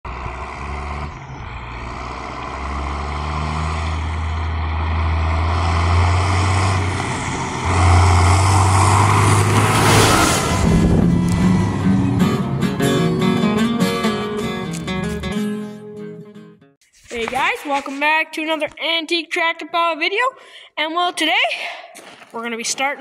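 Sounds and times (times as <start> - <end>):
tractor engine running: 0.0 - 15.5
rush of passing tractor: 0.1 - 15.8.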